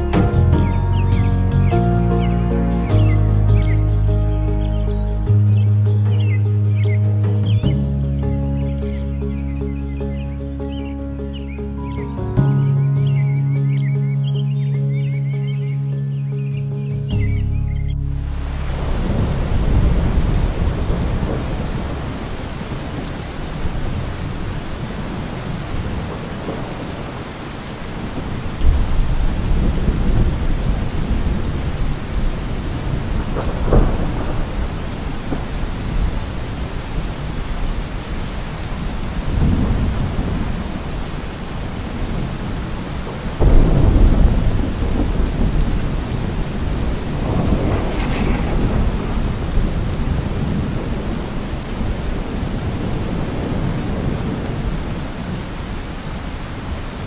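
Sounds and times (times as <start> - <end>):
thunder rumbling: 17.7 - 57.0
steady rain: 17.9 - 57.0.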